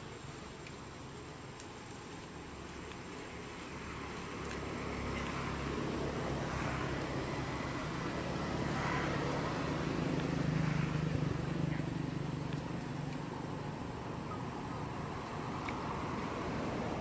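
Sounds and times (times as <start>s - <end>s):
low motor hum: 0.0s - 17.0s
outdoor noise: 0.0s - 17.0s.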